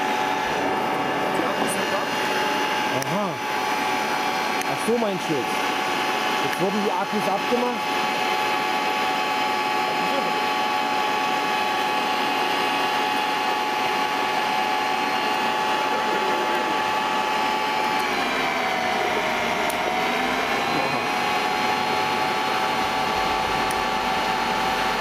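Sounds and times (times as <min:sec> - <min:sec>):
motor-generator high whine: 0:00.0 - 0:25.0.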